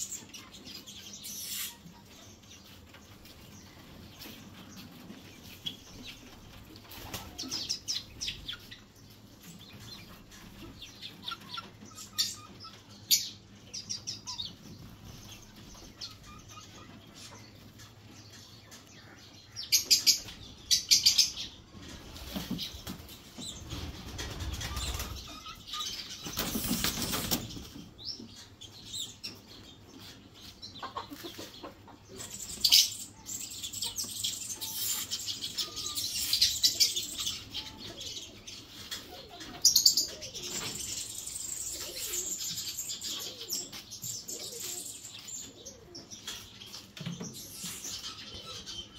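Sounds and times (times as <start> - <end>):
bird chirps and calls: 0.0 - 21.7, 22.4 - 48.9
wing flapping: 26.2 - 27.8.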